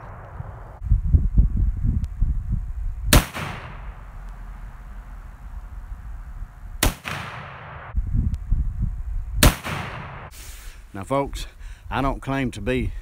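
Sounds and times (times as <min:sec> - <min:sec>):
rifle shot echoing: 0:03.1 - 0:04.1, 0:06.8 - 0:08.0, 0:09.4 - 0:10.3.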